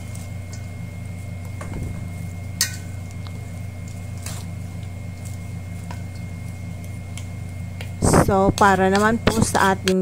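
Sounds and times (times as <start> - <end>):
steady low hum: 0.0 - 10.0
utensil clinking on metal bowl: 2.6 - 3.0.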